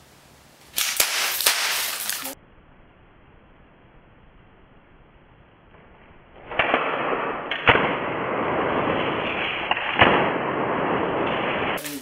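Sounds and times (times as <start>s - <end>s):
steady hiss: 0.0s - 5.7s, 7.2s - 12.0s
revolver shots: 6.3s - 12.0s.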